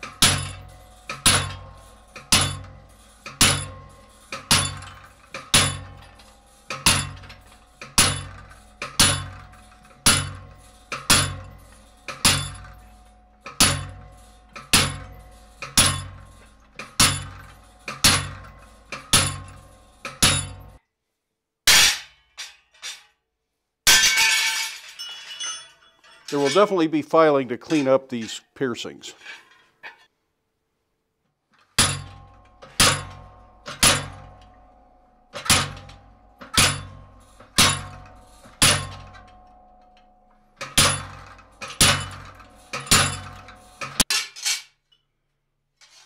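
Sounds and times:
hammer clanging on chisel: 0.0s - 20.8s, 31.7s - 44.4s
metallic clatter: 0.0s - 20.8s, 23.9s - 26.9s, 27.6s - 28.4s, 31.4s - 45.1s, 45.7s - 46.0s.

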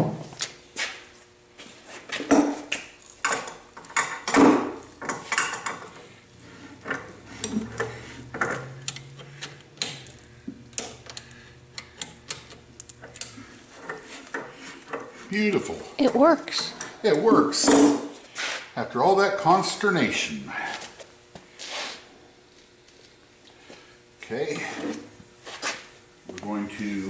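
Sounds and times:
low steady hum: 0.0s - 25.4s
metallic clicks and clunks: 6.8s - 10.1s.

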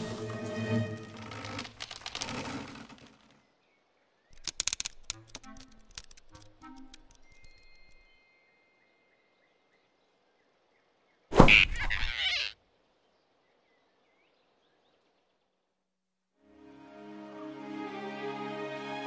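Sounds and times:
tiny chirps: 4.3s - 8.4s.

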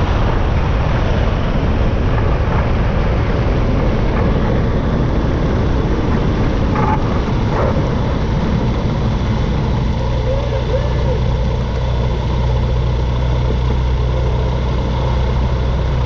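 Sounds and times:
propeller engine running: 0.0s - 16.0s.

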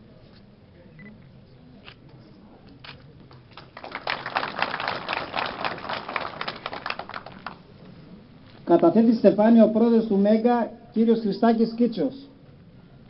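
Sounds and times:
hand claps: 3.5s - 7.6s
crowd applauding: 3.5s - 7.7s.

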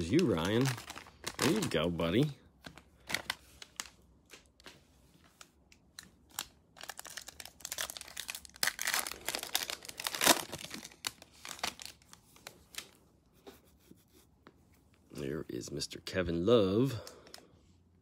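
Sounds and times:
foil wrapper tearing and crinkling: 0.0s - 1.9s, 6.3s - 12.1s.

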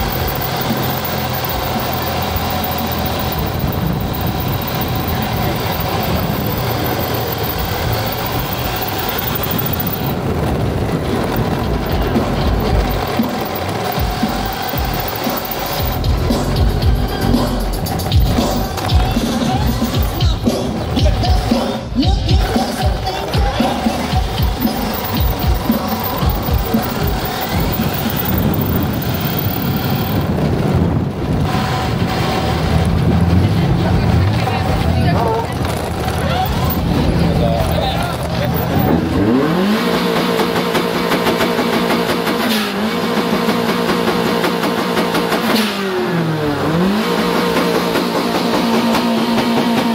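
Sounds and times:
electric motor whine: 0.0s - 16.6s
rc car motor and tyres rumbling: 0.0s - 49.9s
music with a beat: 11.8s - 28.7s.

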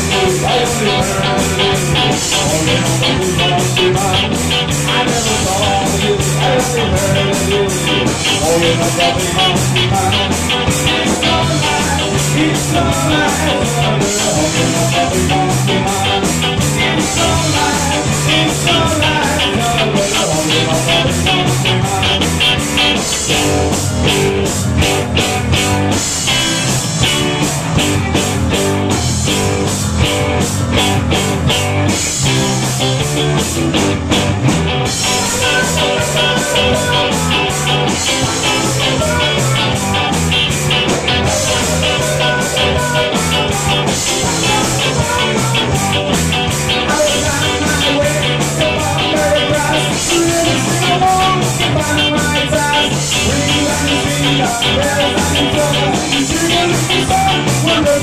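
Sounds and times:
person singing: 0.0s - 22.6s, 34.9s - 58.0s
distorted electric guitar: 0.0s - 58.0s
drum kit with cymbal beat: 0.0s - 58.0s
electric bass: 0.0s - 58.0s.

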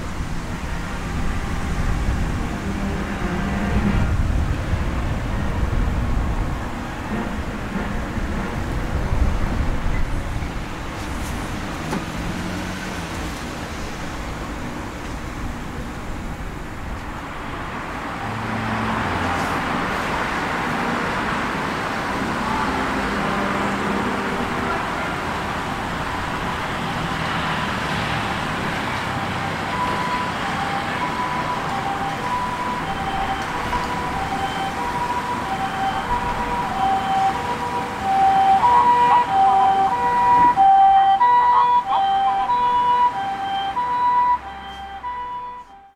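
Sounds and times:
road traffic noise: 0.0s - 45.9s
vehicle passing: 10.6s - 45.5s
ambulance two-tone siren: 18.2s - 19.9s, 22.2s - 45.9s.

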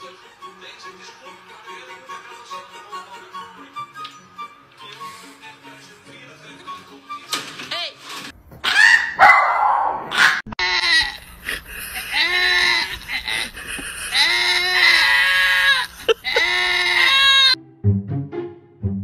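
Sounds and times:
goats bleating: 10.6s - 17.6s.

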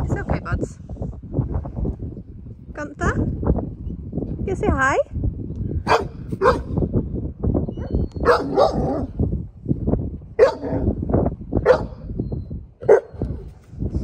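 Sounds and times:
puppy barking: 5.9s - 6.7s, 8.2s - 9.1s, 10.4s - 10.9s, 11.6s - 12.0s, 12.8s - 13.2s.

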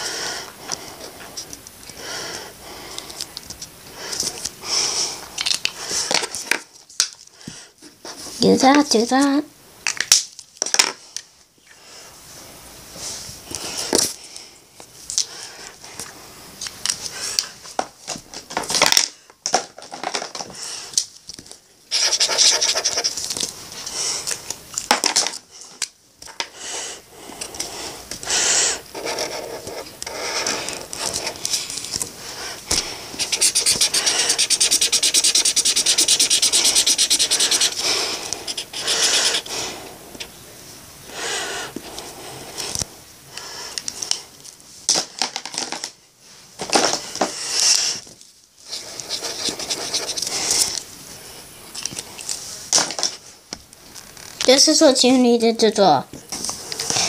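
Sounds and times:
marker scribbling on paper: 21.9s - 23.2s, 28.2s - 31.5s, 33.1s - 39.6s, 48.7s - 50.7s.

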